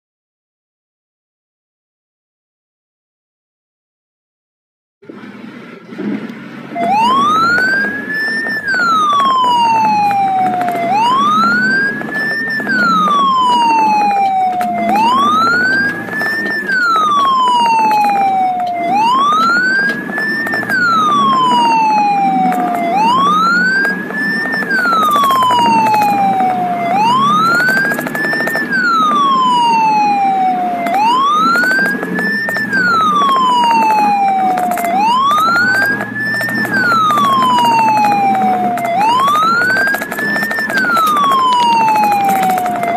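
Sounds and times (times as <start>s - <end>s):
vehicle engine and road noise: 5.0s - 42.9s
ambulance siren wailing: 5.9s - 42.9s.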